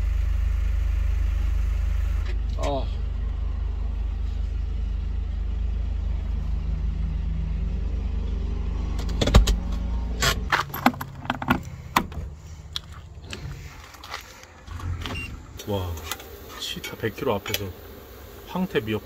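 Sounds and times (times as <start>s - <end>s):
engine low rumble: 0.0s - 19.0s
sharp clicks and knocks: 9.0s - 16.3s.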